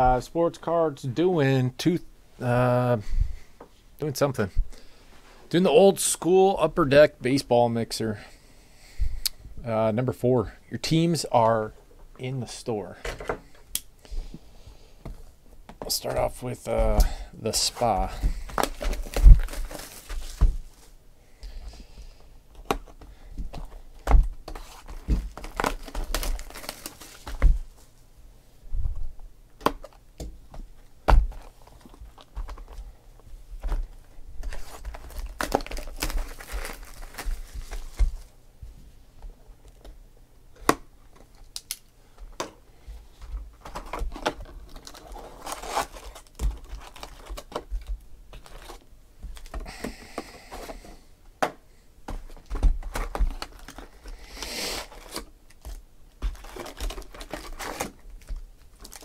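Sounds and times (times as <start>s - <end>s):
plastic wrap tearing and crinkling: 17.6s - 21.0s, 24.5s - 27.5s, 33.8s - 38.3s, 43.7s - 49.5s, 52.4s - 59.0s.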